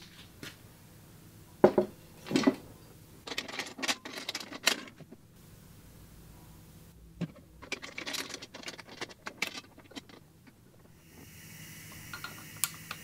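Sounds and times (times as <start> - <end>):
compressed air hissing: 10.9 - 13.0.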